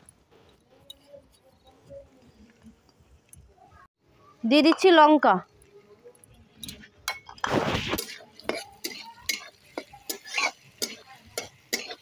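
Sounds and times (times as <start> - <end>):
metal spatula scraping a pan: 6.6 - 12.0
short rush of noise: 7.4 - 8.0.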